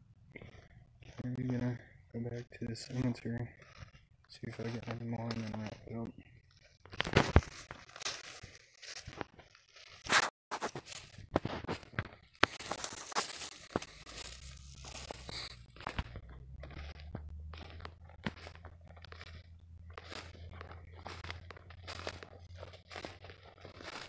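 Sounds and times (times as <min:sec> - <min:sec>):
footsteps crunching through dry leaves: 0:06.9 - 0:24.0.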